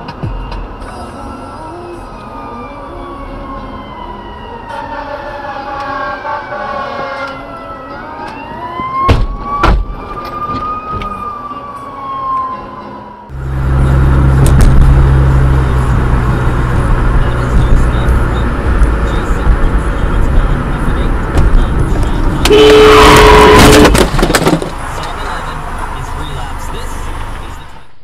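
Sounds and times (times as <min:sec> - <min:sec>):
emergency siren wailing: 0:00.6 - 0:24.0
driving rumble with low hum: 0:13.3 - 0:28.0
sharp bangs: 0:22.4 - 0:24.8.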